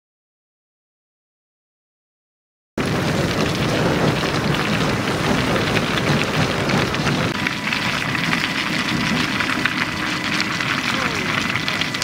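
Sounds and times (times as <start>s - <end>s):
machine running drone: 2.8s - 12.0s.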